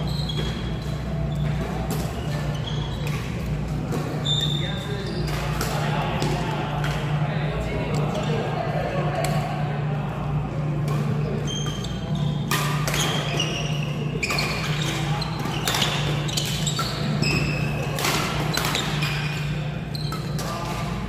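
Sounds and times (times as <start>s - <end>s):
sports shoes squeaking: 0.0s - 6.4s, 11.1s - 21.0s
rackets striking shuttlecock: 10.8s - 21.0s.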